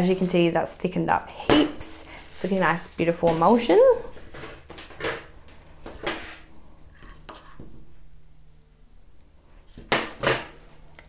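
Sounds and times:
spatula scraping metal bowl: 7.0s - 7.6s.

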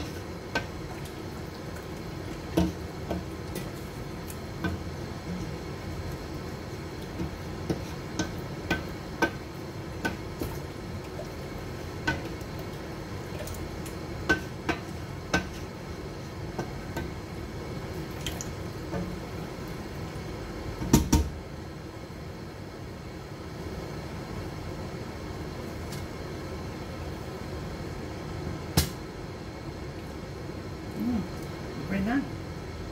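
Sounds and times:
wooden spoon stirring in pot: 0.0s - 20.8s.

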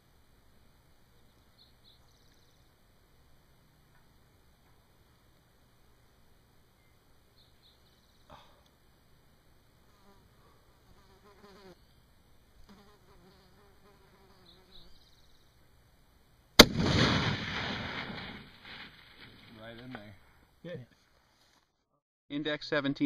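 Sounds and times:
faint buzzing: 0.0s - 21.6s
rifle shot with rolling echo: 16.6s - 19.0s.

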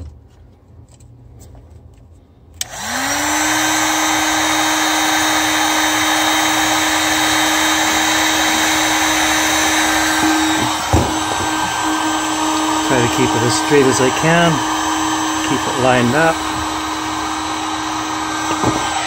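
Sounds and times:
heat gun fan blowing: 2.4s - 19.0s.

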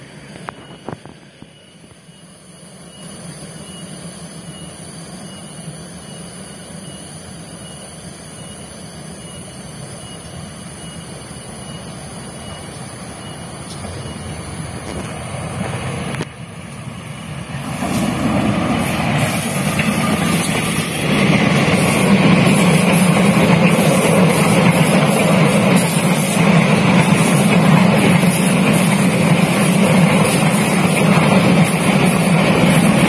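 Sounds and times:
locomotive engine drone: 0.0s - 33.0s.

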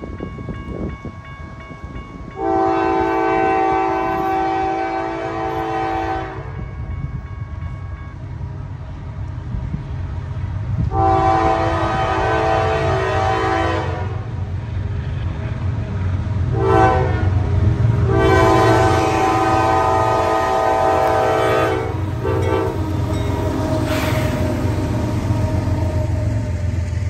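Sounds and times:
low rumble of train: 0.0s - 27.0s
locomotive horn blasts: 2.4s - 6.7s, 10.9s - 14.3s, 16.5s - 17.4s, 18.0s - 24.6s.

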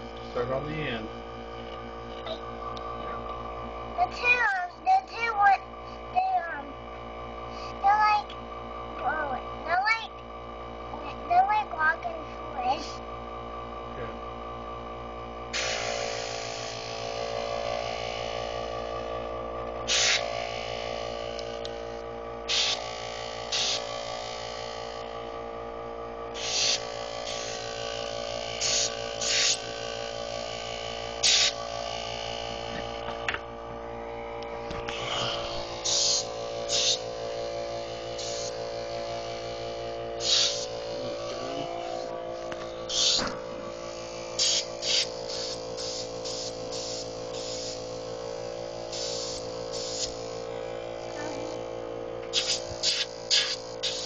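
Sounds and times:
steady hum: 0.0s - 54.0s
compressed air blow gun hissing: 15.6s - 16.9s, 19.8s - 20.6s, 22.5s - 22.9s, 23.5s - 24.0s, 26.4s - 27.8s, 28.5s - 29.7s, 31.2s - 31.7s, 34.9s - 37.0s, 38.1s - 38.6s, 40.2s - 41.0s, 42.8s - 43.3s, 44.0s - 48.0s, 48.7s - 50.5s, 52.3s - 54.0s.

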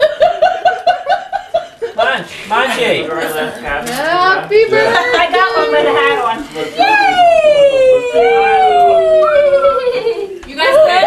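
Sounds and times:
voices cheering yay: 6.8s - 11.0s.

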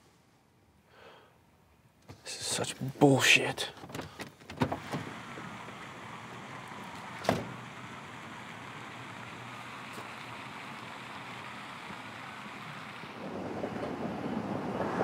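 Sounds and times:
car door slamming: 3.9s - 7.7s.

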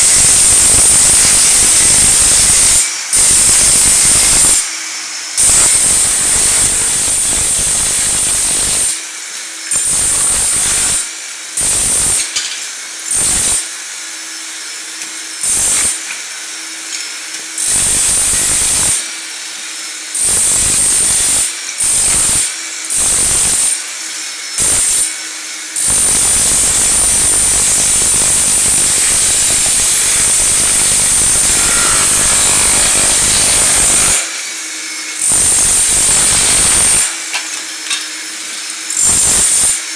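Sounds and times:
vacuum high whine: 0.0s - 9.7s, 25.4s - 39.6s
electric chipping hammer breaking tile: 0.0s - 13.8s, 14.8s - 39.9s.

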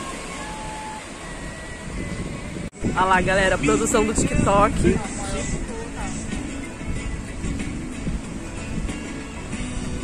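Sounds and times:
faint thin whistle-like tones: 0.0s - 2.6s
waves washing onto beach: 0.0s - 10.0s.

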